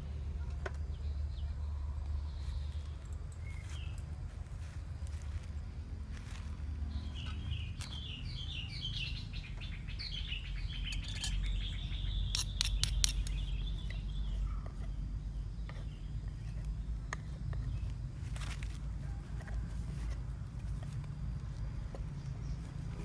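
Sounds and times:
songbird chirping and trilling: 0.0 - 5.5, 6.2 - 20.1
utensils clicking in clay mortar: 10.9 - 14.0.

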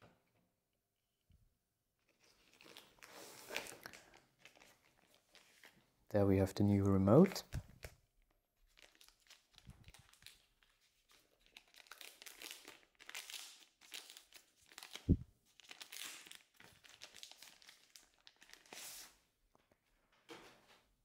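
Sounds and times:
plastic bag crinkling: 2.1 - 5.8, 8.7 - 18.8.

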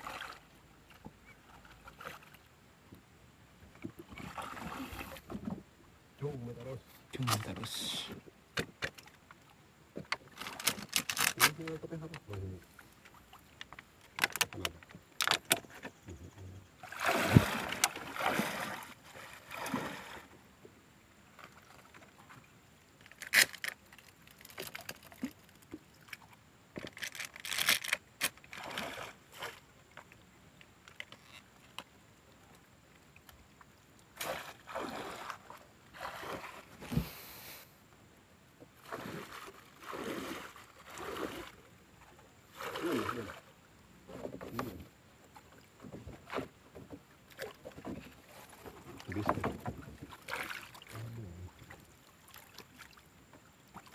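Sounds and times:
water splashing around boat: 0.0 - 37.7, 38.6 - 53.9
light knocks on wooden boat: 48.7 - 50.1.

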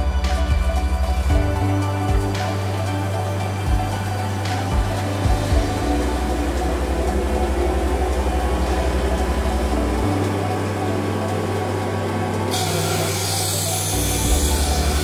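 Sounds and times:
low pulsing beat: 0.0 - 15.0
coolant spraying: 1.1 - 15.0
abrasive cut-off wheel spinning: 2.4 - 15.0
high hiss of wheel cutting metal: 12.2 - 15.0.

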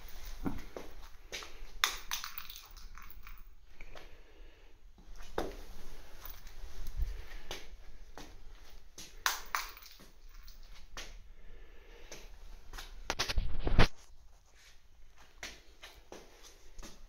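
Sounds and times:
handling clicks and rustles: 0.0 - 3.6, 5.0 - 7.3, 8.2 - 11.0.

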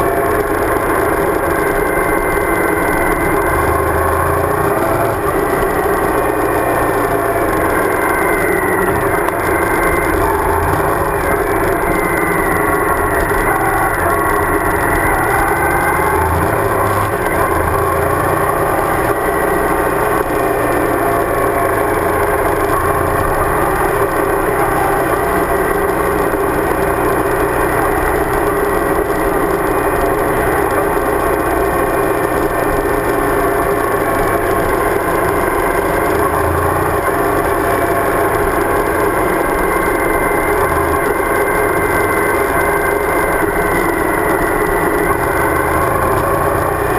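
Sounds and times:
motorcycle engine running: 0.0 - 46.9.

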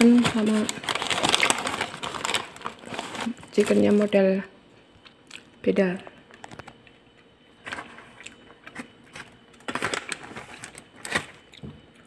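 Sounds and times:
paper and plastic bag rustling: 0.0 - 4.3, 9.1 - 11.4.

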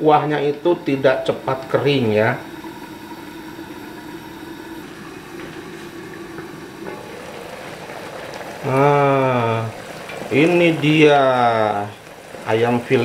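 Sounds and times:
person speaking: 0.0 - 2.6
pot bubbling and hissing: 0.0 - 13.0.

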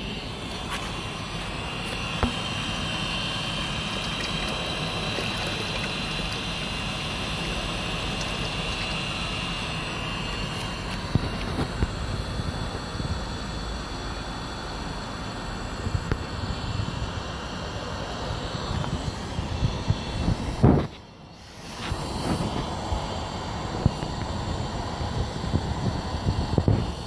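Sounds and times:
heater fan whine: 0.0 - 27.0
water splashing into steel bucket: 3.6 - 9.8.

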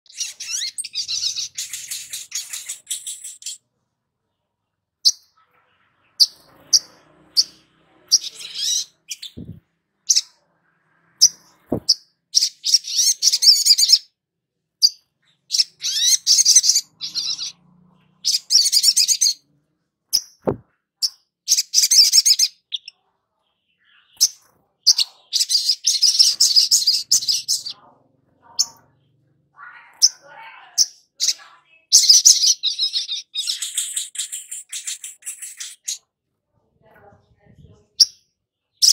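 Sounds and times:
sharp bird chirps: 0.1 - 3.6, 5.0 - 14.1, 14.8 - 19.4, 20.1 - 23.0, 23.7 - 27.8, 31.0 - 36.0.

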